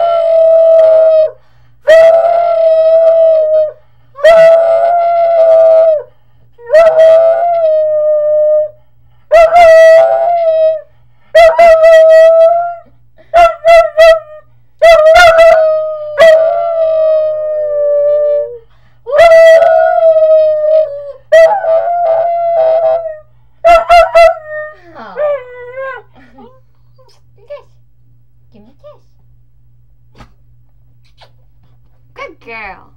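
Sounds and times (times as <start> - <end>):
dog howling: 0.0 - 26.1
woman howling: 0.0 - 26.6.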